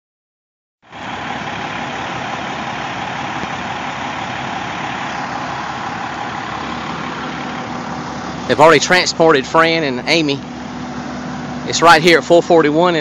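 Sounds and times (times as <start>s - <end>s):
diesel engine idling: 0.8s - 13.0s.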